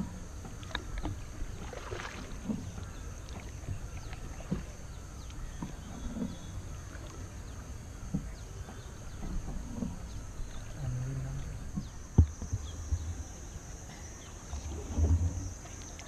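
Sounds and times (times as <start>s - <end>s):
paddle knocking and splashing: 0.0s - 10.7s, 11.6s - 13.5s.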